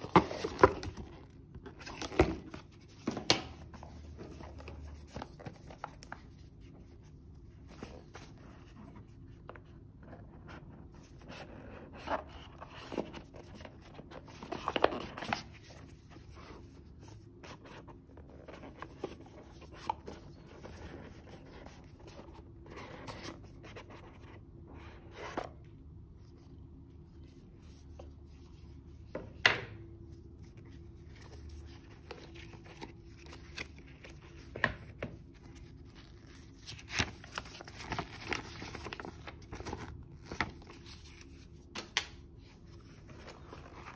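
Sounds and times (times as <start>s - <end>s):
paper handling: 0.0s - 9.8s, 30.1s - 43.9s.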